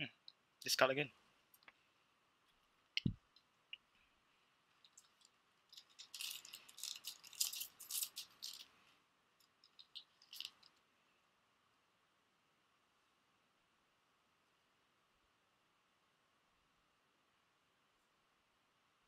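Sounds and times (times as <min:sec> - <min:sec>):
foil wrappers crinkling: 0:05.0 - 0:08.7, 0:09.7 - 0:10.7.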